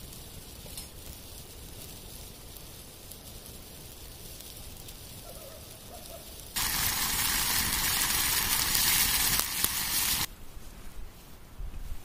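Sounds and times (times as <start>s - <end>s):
campfire crackles: 0.0s - 11.3s
pot sizzling hiss: 1.0s - 10.3s.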